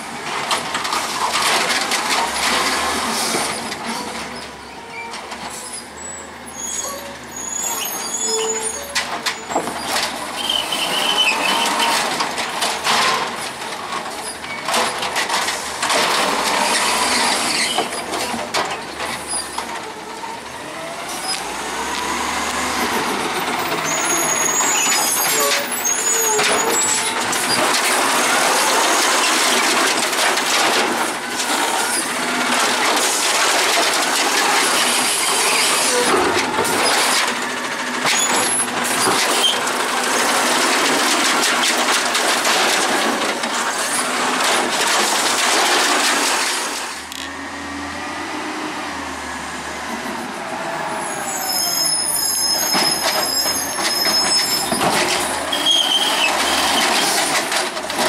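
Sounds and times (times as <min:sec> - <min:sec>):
truck engine and hydraulics: 0:00.0 - 0:58.0
high brake squeals: 0:04.6 - 0:12.0, 0:23.6 - 0:27.6, 0:50.9 - 0:57.3
load clattering into hopper: 0:21.8 - 0:47.1, 0:52.7 - 0:58.0.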